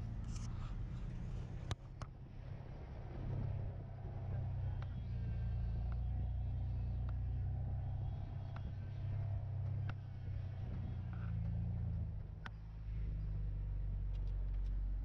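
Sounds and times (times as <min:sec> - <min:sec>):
truck engine running: 0:00.0 - 0:15.0
faint clicks: 0:04.0 - 0:15.0.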